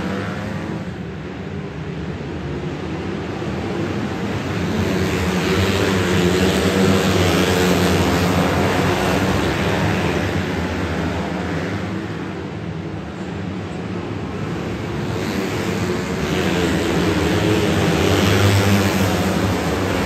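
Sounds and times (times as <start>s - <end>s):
race car engines passing: 14.2s - 20.0s.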